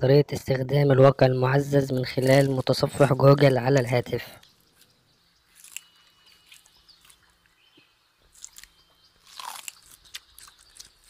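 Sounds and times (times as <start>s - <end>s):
crisp crunching and chewing: 1.9s - 3.5s, 5.5s - 7.6s, 8.2s - 11.0s.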